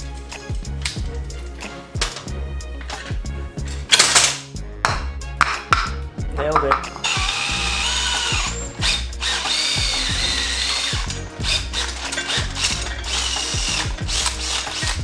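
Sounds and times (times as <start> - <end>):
cordless drill drilling metal: 7.0 - 15.0.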